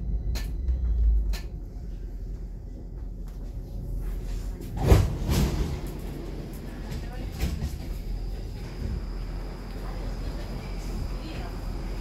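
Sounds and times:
train low rumble: 0.0s - 12.0s
train doors sliding shut: 4.6s - 11.5s.

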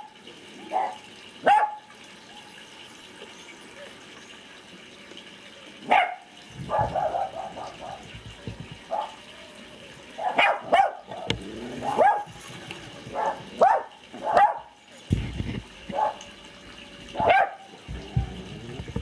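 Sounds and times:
dog barking: 0.6s - 1.9s, 5.8s - 8.1s, 8.9s - 9.3s, 10.2s - 12.4s, 13.1s - 14.8s, 15.9s - 16.2s, 17.2s - 18.4s.

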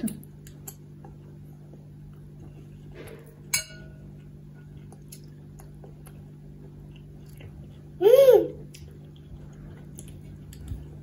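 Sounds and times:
faint low hum: 0.0s - 11.0s
metal spoon clinking ceramic bowl: 3.5s - 4.0s.

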